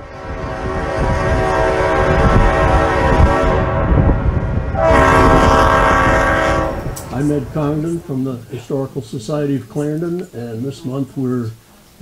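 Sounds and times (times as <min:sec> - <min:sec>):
train whistle blast: 0:00.0 - 0:07.0
rumble of moving train: 0:00.0 - 0:08.6.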